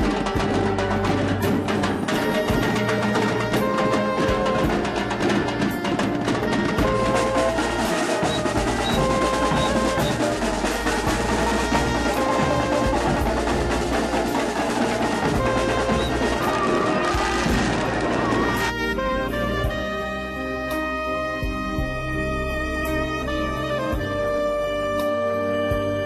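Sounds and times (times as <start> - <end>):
marching drums playing fast beat: 0.0 - 19.8.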